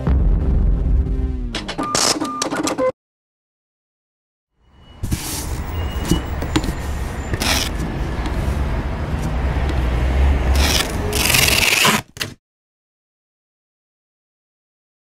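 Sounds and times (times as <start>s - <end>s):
low traffic rumble: 4.7s - 11.7s.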